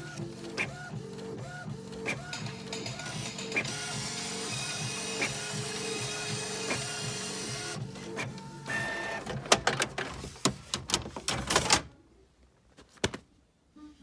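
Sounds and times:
printer running: 0.0 - 10.4
printer clicks and clacks: 0.0 - 11.9.

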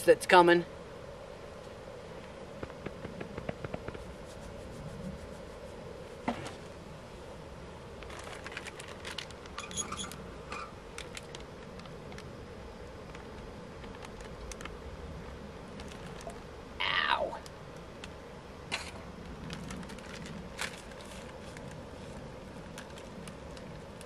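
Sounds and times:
faint steady hum: 0.0 - 24.0
packaging crinkling: 8.0 - 9.6, 15.8 - 16.4
items clicking and rustling: 8.0 - 12.3, 15.8 - 16.4, 22.6 - 24.0.

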